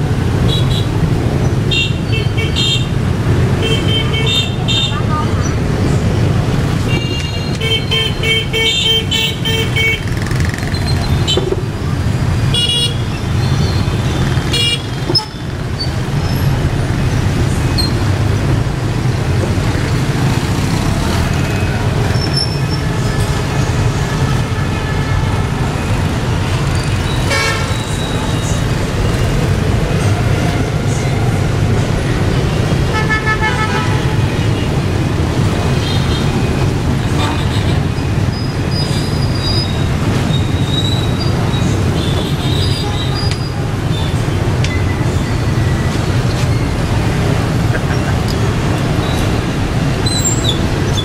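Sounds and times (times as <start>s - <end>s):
motorbikes and trucks running: 0.0s - 51.0s
vehicle horns honking: 12.5s - 15.4s, 27.0s - 28.6s, 32.8s - 34.7s.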